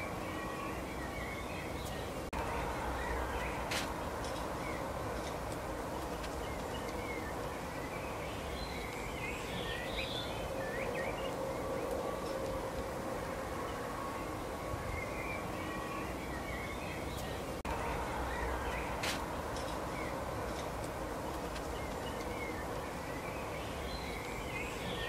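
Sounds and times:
faint hum: 0.0s - 25.0s
small birds chirping: 0.0s - 25.0s.

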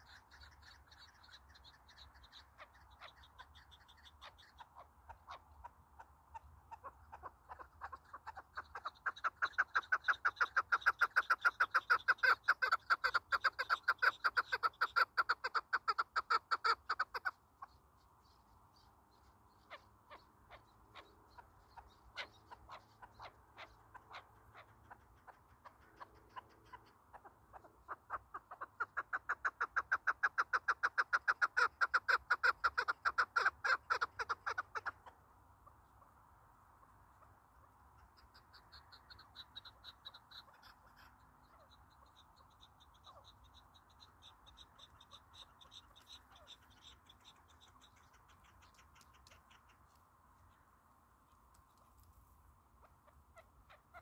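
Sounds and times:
partridge chuk-chuk call: 0.0s - 17.8s, 19.6s - 35.2s.

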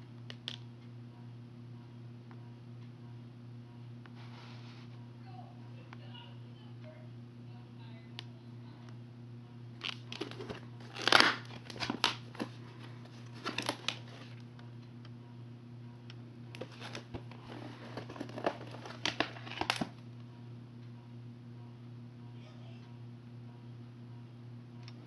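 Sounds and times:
plastic case crackling and clicking: 9.8s - 14.4s, 16.6s - 20.0s.

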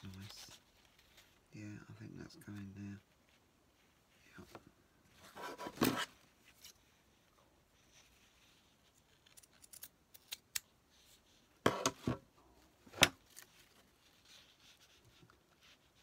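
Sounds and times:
scissors snipping: 9.3s - 10.6s.

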